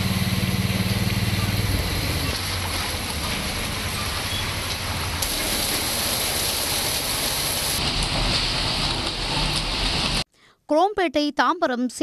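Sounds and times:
vehicle engine rumble: 0.0 - 10.3
heavy rain on street: 0.8 - 10.2.

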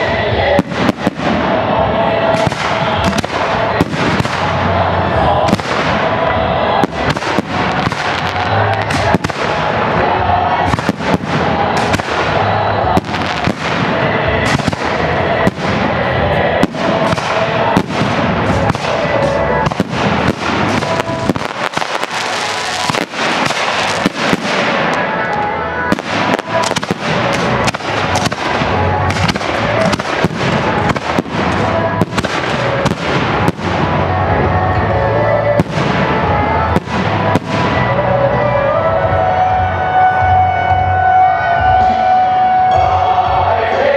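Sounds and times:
fireworks bursting: 0.0 - 38.8
continuous rush of noise: 0.0 - 43.9.

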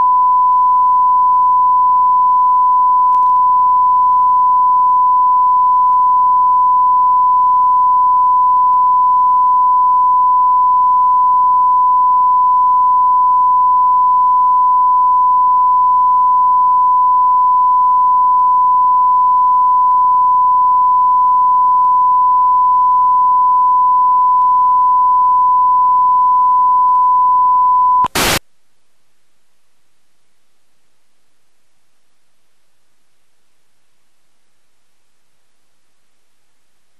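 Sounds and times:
faint tape hiss: 0.0 - 9.4, 28.0 - 36.9
steady pure test tone: 0.0 - 28.4
short burst of static: 28.0 - 28.4.

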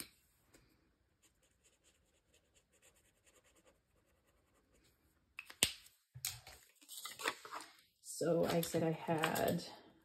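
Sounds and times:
pen scratching on paper: 1.2 - 4.8.

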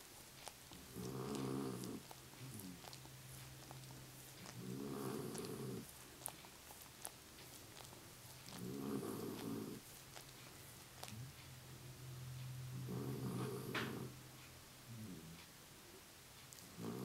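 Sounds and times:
dog licking paw: 0.0 - 11.5
steady low hum: 0.0 - 17.0
dog groaning: 0.4 - 10.3, 12.8 - 14.2, 16.6 - 17.0.

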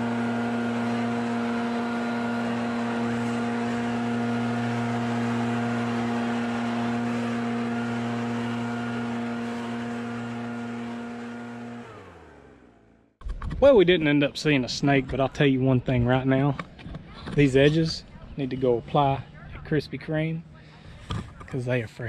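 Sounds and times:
leaf blower engine running: 0.0 - 13.0.

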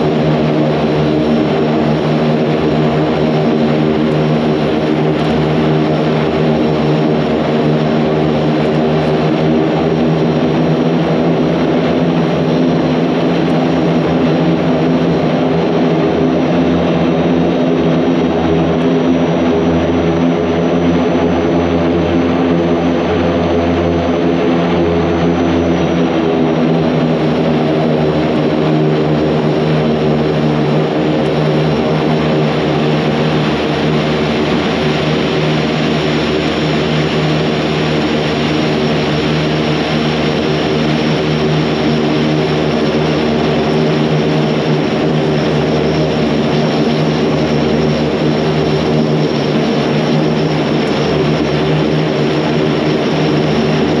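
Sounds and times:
turboprop engines droning: 0.0 - 54.0.

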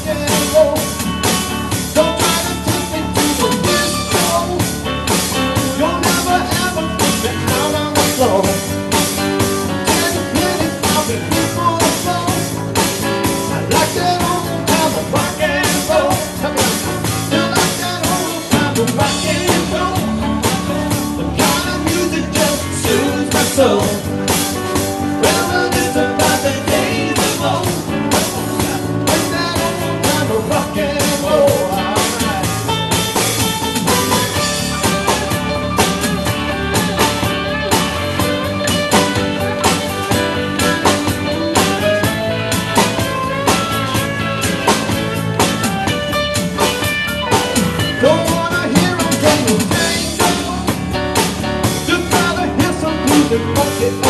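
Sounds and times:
drum kit beat: 0.0 - 54.0
electric guitar: 0.0 - 54.0.

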